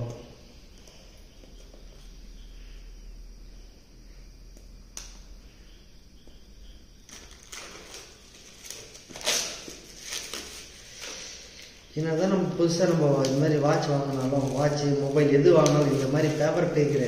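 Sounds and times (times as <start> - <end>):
crackling rustles: 7.0 - 11.8, 12.8 - 17.0
packaging being torn and handled: 7.1 - 10.6.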